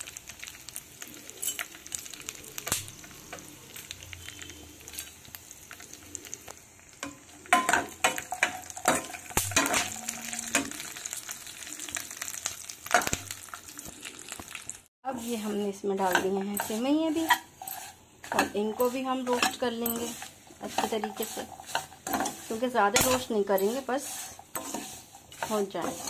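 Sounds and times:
food sizzling in ghee: 0.0 - 26.0
steel ladle scraping a pan: 7.0 - 11.1, 15.1 - 26.0.

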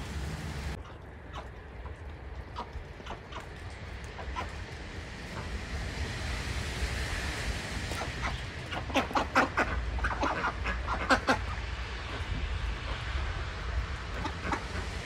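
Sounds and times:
low rumble: 0.0 - 15.0
ducks and hens calling: 7.9 - 12.2.

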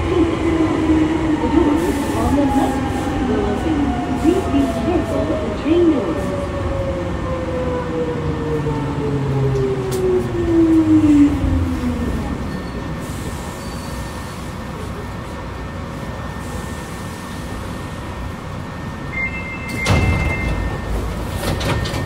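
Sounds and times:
rumble of wheels on rail: 0.0 - 22.0.

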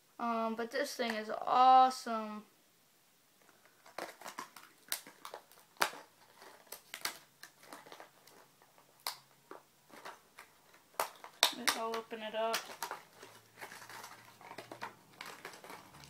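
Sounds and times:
plastic package crinkling: 3.4 - 16.0.

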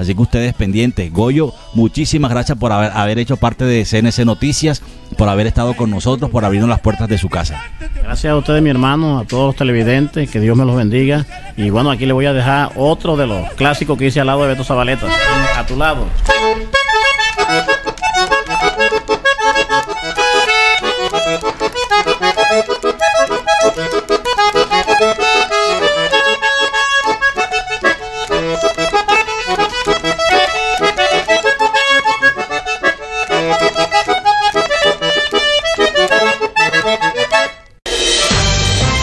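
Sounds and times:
button accordion melody: 11.3 - 39.0.

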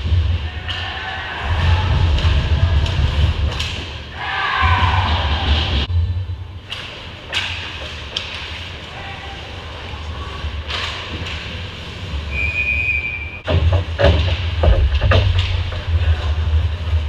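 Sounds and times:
hockey sticks and puck clacking: 0.0 - 4.1, 6.7 - 9.0, 10.6 - 11.8, 13.5 - 16.7
low rumble: 1.4 - 6.7.

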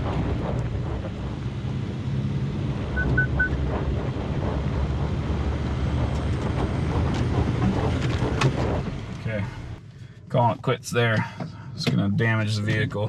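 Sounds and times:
truck engine running under load: 0.0 - 9.8
high-pitched beeps: 3.0 - 3.6.

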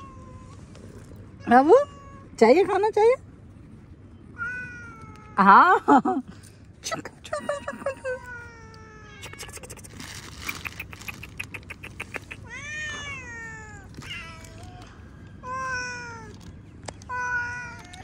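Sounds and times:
cats meowing: 4.3 - 5.4, 7.6 - 18.0.

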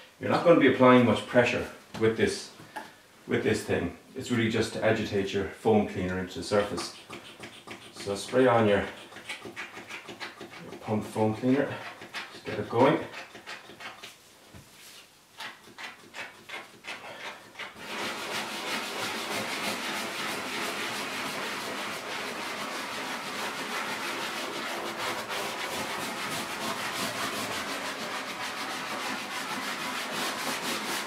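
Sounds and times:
scrub brush rubbing leather: 6.5 - 31.0.

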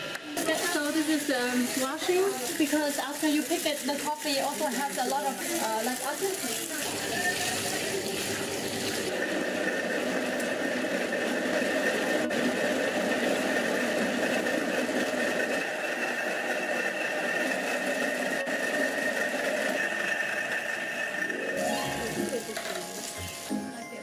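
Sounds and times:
hulling machine drone with whine: 6.9 - 22.9.

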